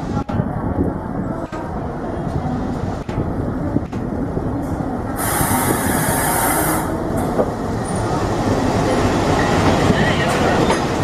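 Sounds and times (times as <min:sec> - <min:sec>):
diesel locomotive engine rumbling: 0:00.0 - 0:11.0
sharp hiss: 0:05.2 - 0:06.9.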